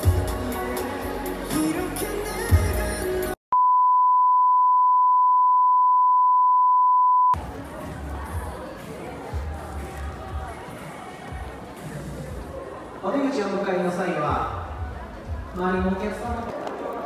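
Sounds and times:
crowd in a hall: 0.0 - 3.4, 7.3 - 17.0
music: 0.0 - 3.4, 7.4 - 12.6, 14.3 - 16.4
steady pure beep tone: 3.5 - 7.4.

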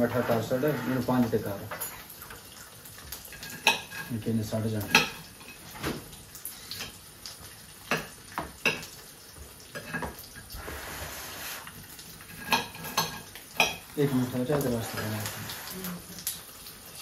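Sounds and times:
cutlery and dishes clinking: 0.0 - 2.4, 3.3 - 4.2, 4.8 - 5.9, 9.8 - 10.2, 12.2 - 13.9
chicken frying in a pan: 0.0 - 17.0.

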